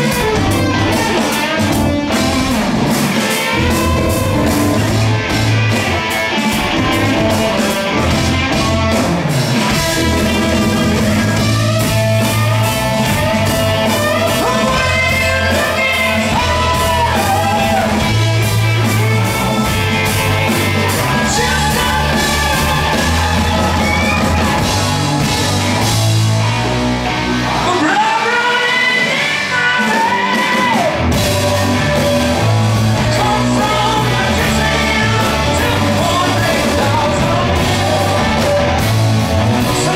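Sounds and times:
bass guitar: 0.0s - 39.9s
drums: 0.0s - 39.9s
electric guitar: 0.0s - 39.9s
man singing: 13.8s - 18.3s, 20.7s - 24.2s, 27.6s - 38.9s, 39.5s - 39.9s.

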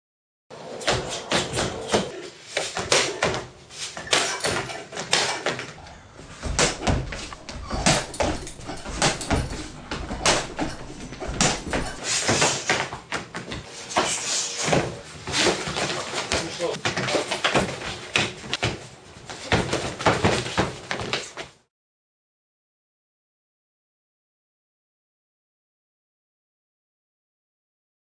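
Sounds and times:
feet stamping on wooden deck: 6.2s - 12.0s
kicks striking heavy bag: 6.2s - 12.6s.

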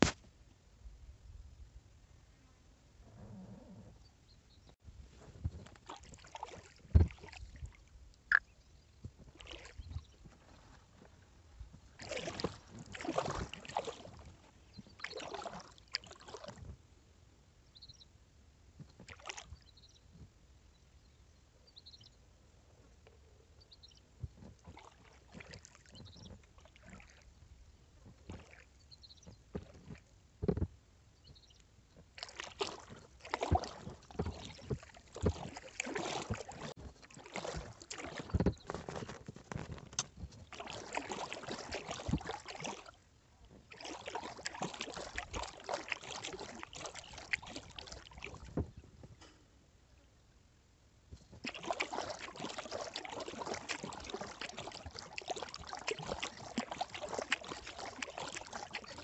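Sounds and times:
paddle splashing and dripping: 5.3s - 16.8s, 18.9s - 19.8s, 24.2s - 30.6s, 31.4s - 49.3s, 51.1s - 59.0s.

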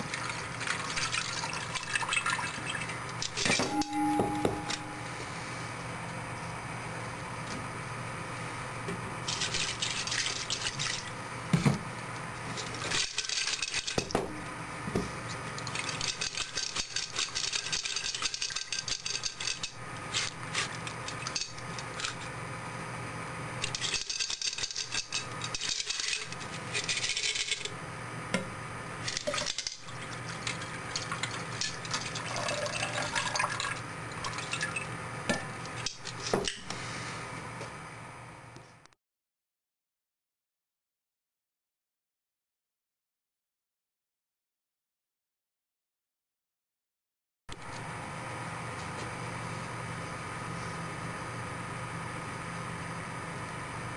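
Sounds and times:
water pouring and splashing: 0.0s - 3.4s, 29.1s - 34.9s.

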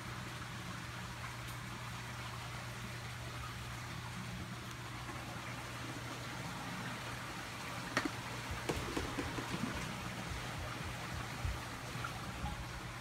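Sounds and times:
aquarium filter humming: 0.0s - 13.0s
rushing water: 0.0s - 13.0s.

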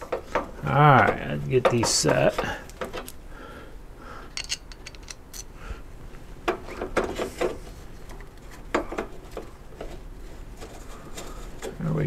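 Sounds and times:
metal clicks and scrapes: 4.4s - 5.5s.

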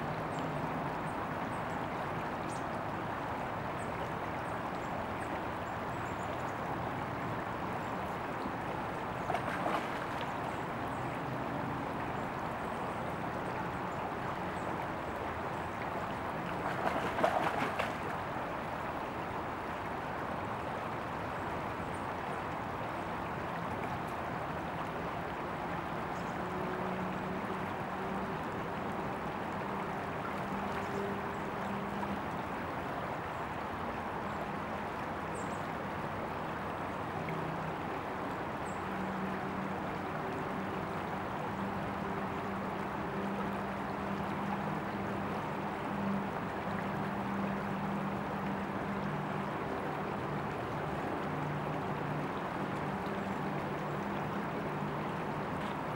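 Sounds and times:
creek water rushing: 0.0s - 55.9s
water splashing: 8.4s - 19.7s.

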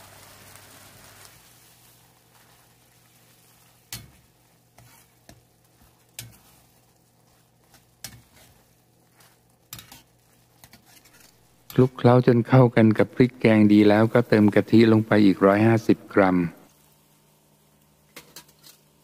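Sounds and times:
faint sizzle: 0.0s - 19.0s
ladle stirring in a metal pan: 1.4s - 11.8s, 18.1s - 19.0s.

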